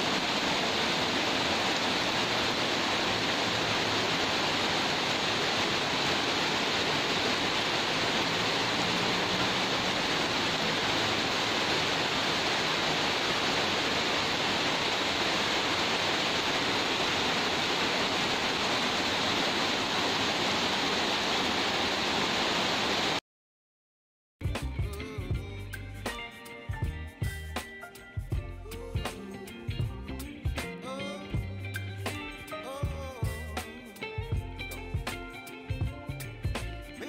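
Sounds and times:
heavy rain hissing: 0.0 - 23.2
water pouring off roofs: 0.0 - 23.2.

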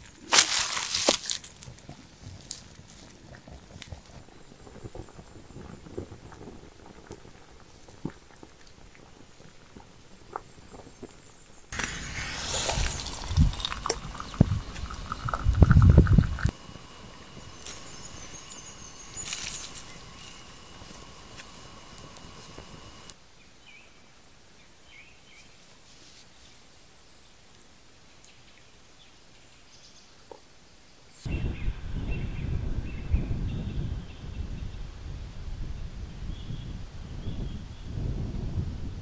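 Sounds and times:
wood fire crackling: 0.0 - 23.2
tea pouring into a mug: 11.8 - 23.1.

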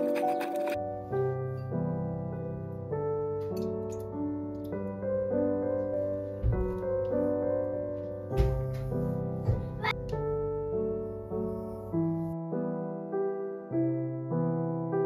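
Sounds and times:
slow piano melody: 0.0 - 15.0
soft thumps: 6.4 - 7.0.

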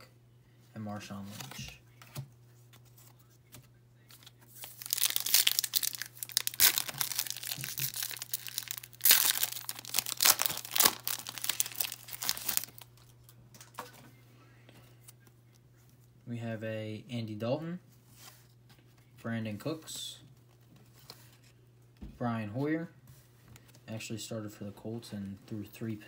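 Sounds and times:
foil wrapper tearing and crinkling: 4.6 - 13.1.

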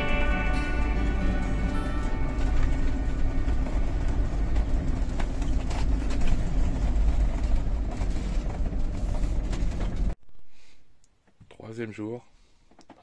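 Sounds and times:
engine and road rumble: 0.0 - 10.2.

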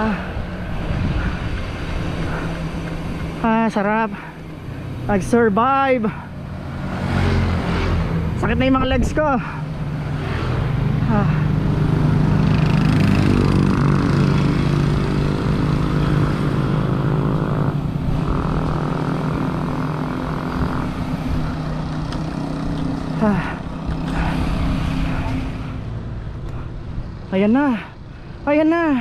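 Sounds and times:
vehicle engine running: 0.0 - 27.2
road noise: 0.0 - 29.0.

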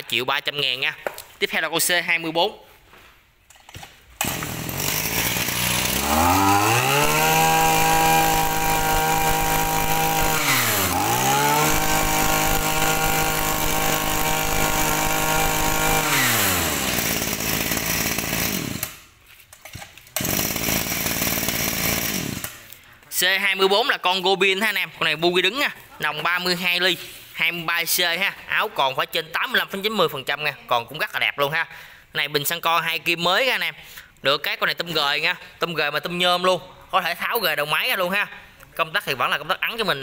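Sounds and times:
brush cutter engine revving: 4.2 - 19.1, 19.7 - 22.8.

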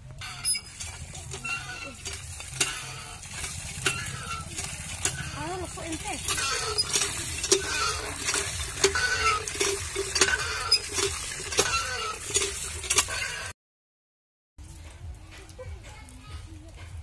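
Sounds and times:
pump handle clanking and squeaking: 0.0 - 13.5
water splashing: 0.2 - 13.5.

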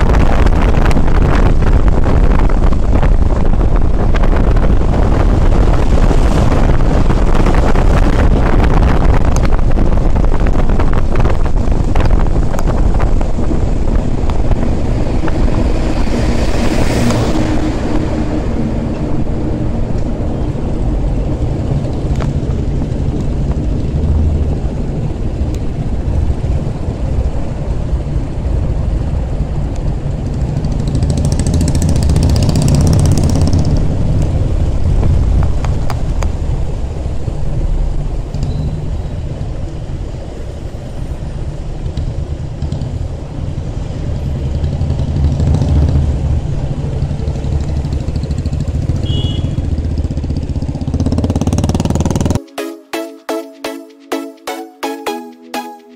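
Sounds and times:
road and wind noise: 0.0 - 52.5
motorcycle engine running: 44.4 - 52.4.

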